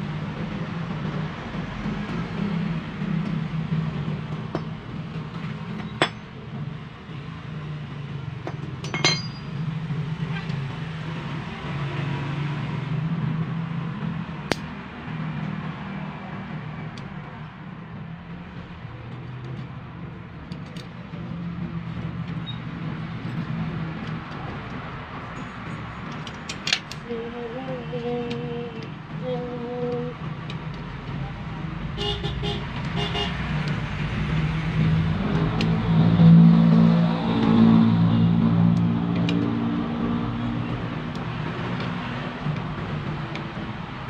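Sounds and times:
metal parts clinking on concrete: 0:05.8 - 0:06.2, 0:08.8 - 0:09.6, 0:26.1 - 0:27.0.

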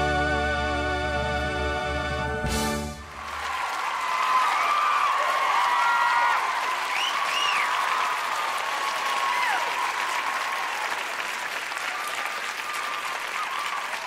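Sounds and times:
crowd applauding: 0:03.0 - 0:14.0.

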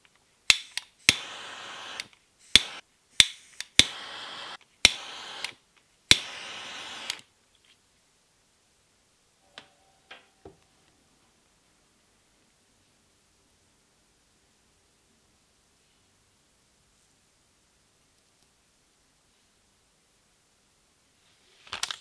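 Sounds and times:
heat tool hissing: 0:00.6 - 0:07.3.

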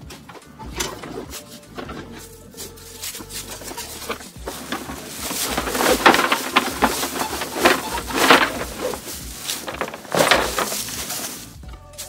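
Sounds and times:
fabric bag rustling and flapping: 0:03.2 - 0:11.6.

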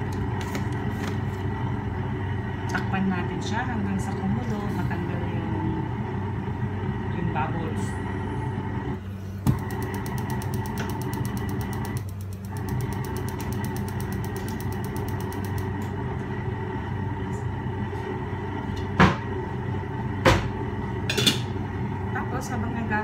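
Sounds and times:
kitchen appliance humming: 0:00.0 - 0:23.0
faint rapid high ticking: 0:09.7 - 0:15.7.

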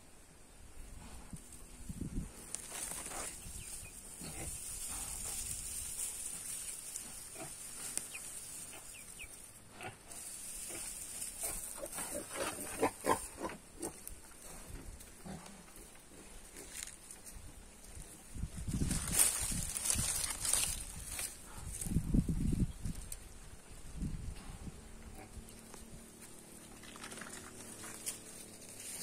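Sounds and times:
farm animals calling: 0:02.6 - 0:17.0.

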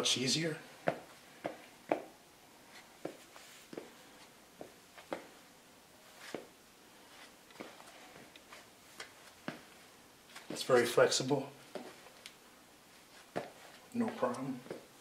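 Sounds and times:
sneaker soles scuffing on concrete: 0:00.8 - 0:05.4, 0:06.0 - 0:06.5, 0:07.1 - 0:11.0, 0:11.6 - 0:12.2, 0:13.0 - 0:14.9.

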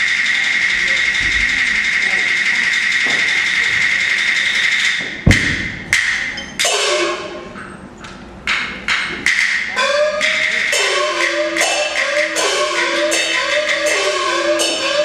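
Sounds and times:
drum strikes: 0:00.7 - 0:07.7, 0:08.4 - 0:15.0
wooden clapper strikes: 0:04.4 - 0:07.7
ringing gong strokes: 0:06.4 - 0:07.6, 0:09.7 - 0:15.0.

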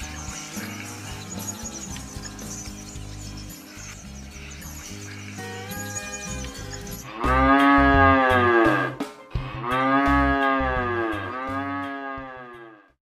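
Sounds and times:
cattle mooing: 0:07.1 - 0:09.0, 0:09.6 - 0:12.8.

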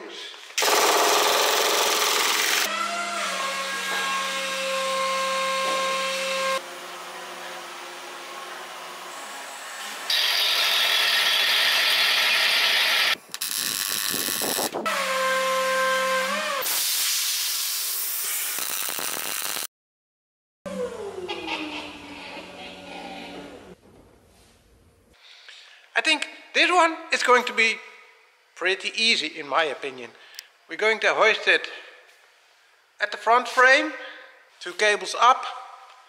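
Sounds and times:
pneumatic impact wrench burst: 0:00.6 - 0:02.7, 0:16.6 - 0:19.7.

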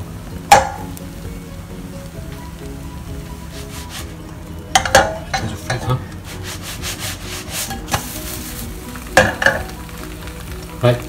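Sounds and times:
omelette scraping in a wok: 0:03.5 - 0:04.2, 0:06.1 - 0:09.7.

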